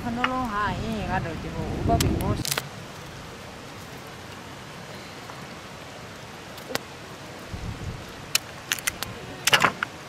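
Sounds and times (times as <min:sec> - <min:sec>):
outdoor hiss: 0:00.0 - 0:10.0
sharp cracks: 0:02.0 - 0:02.7, 0:08.3 - 0:09.9.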